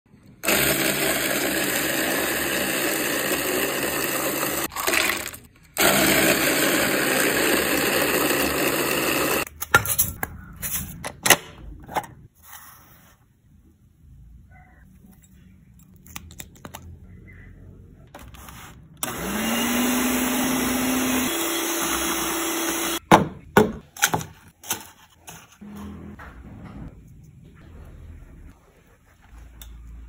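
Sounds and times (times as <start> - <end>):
electric ice shaver motor: 0.4 - 9.5, 19.0 - 23.0.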